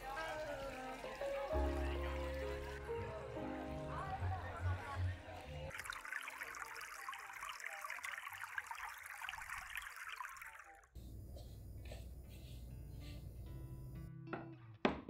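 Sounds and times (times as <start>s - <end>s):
water trickling: 0.0s - 4.9s, 5.7s - 10.9s.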